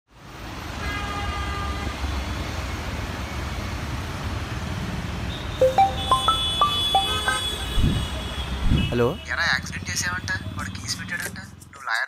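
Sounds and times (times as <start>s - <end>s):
plucked music notes: 5.6s - 7.4s
vehicle horn: 6.0s - 9.0s.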